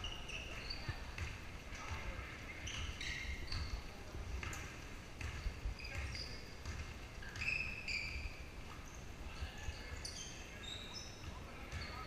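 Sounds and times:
sneakers squeaking on hardwood: 0.0 - 12.0
basketball bouncing: 0.9 - 2.1, 4.4 - 7.6.

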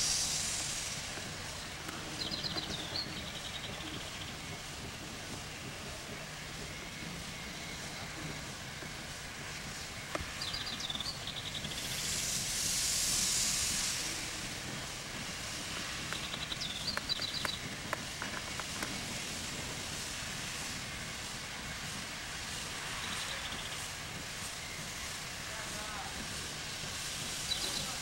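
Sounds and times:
steam locomotive hissing steam: 0.0 - 28.0
small bird chirping: 16.1 - 17.7.

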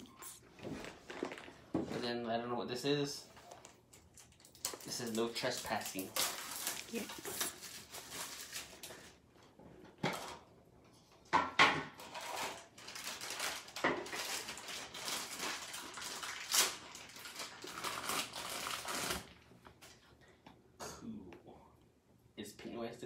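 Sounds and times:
plastic wrapping rustling: 0.0 - 2.2, 3.2 - 9.3, 12.0 - 20.0.

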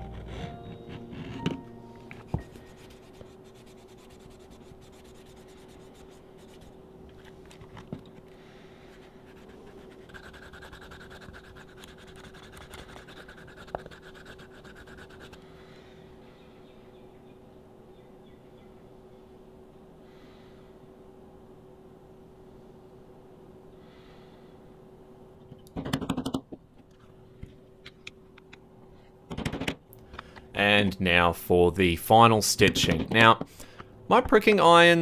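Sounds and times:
tools scraping leather: 0.0 - 1.6, 8.9 - 15.4
low steady hum: 0.0 - 35.0.

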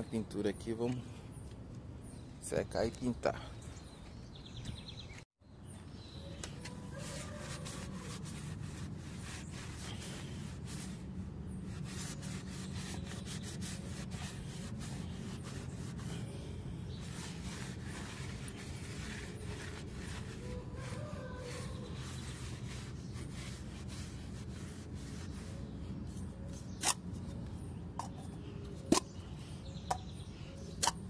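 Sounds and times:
cloth wiping steel wheel: 6.5 - 27.4.

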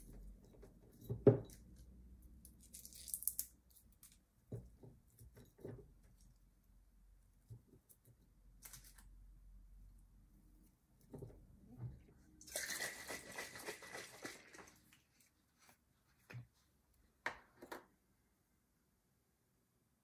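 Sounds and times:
dry onion skins crackling: 1.6 - 4.3.

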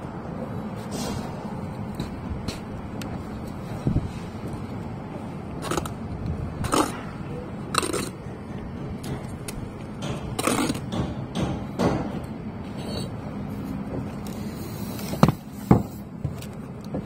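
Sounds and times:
low traffic hum: 0.0 - 17.0
trowel scraping mortar: 6.6 - 8.2, 10.3 - 10.9.

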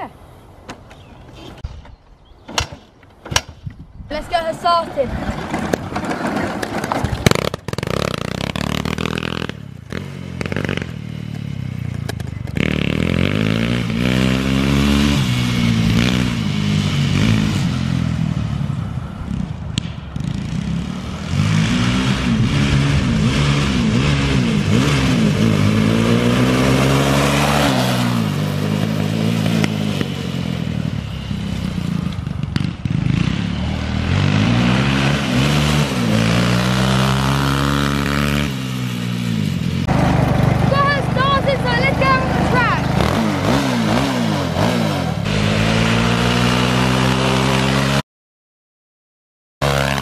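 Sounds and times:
scooter clattering being pushed: 4.6 - 7.8
small engine revving: 5.0 - 48.0, 49.6 - 50.0.

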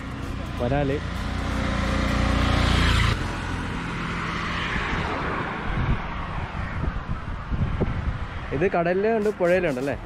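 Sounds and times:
vehicle engine passing: 0.0 - 6.6
road noise: 0.0 - 10.0.

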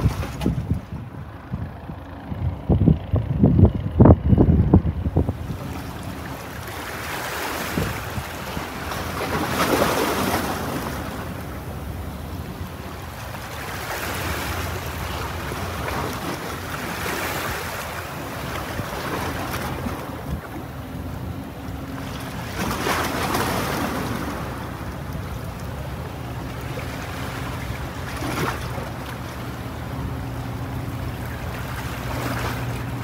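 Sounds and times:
sea waves washing in: 0.0 - 2.2, 5.2 - 33.0
wind buffeting microphone: 0.0 - 6.8, 7.5 - 13.5
steady low rumble: 0.0 - 7.1, 7.7 - 33.0.

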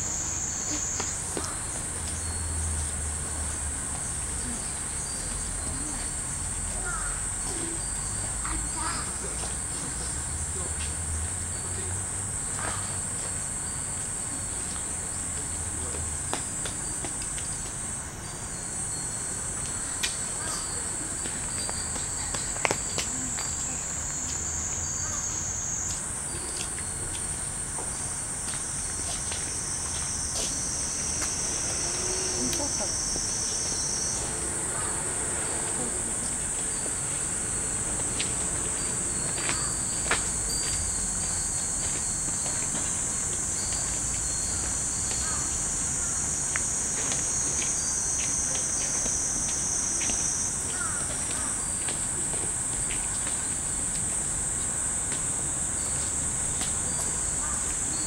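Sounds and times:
cicadas droning: 0.0 - 58.0
lower insect song: 0.0 - 58.0
metal wind chimes clinking: 1.9 - 28.9, 35.5 - 46.1, 47.6 - 48.8.

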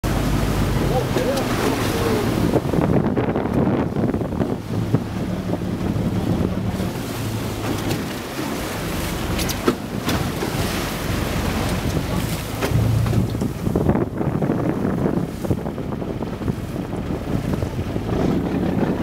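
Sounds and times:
low engine hum: 0.0 - 19.0
sea water rushing along hull: 0.0 - 19.0
wind buffeting microphone: 0.0 - 19.0.

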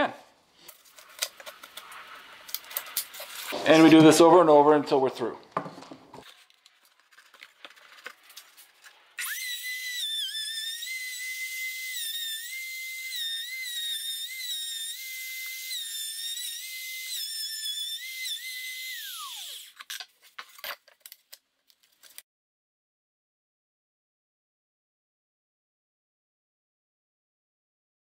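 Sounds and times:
router whining: 9.2 - 19.8.

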